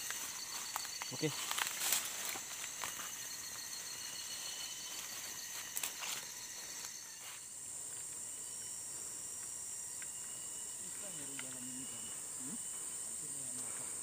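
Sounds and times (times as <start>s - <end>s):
footsteps on path: 0.0s - 7.5s
insects droning: 0.0s - 14.0s.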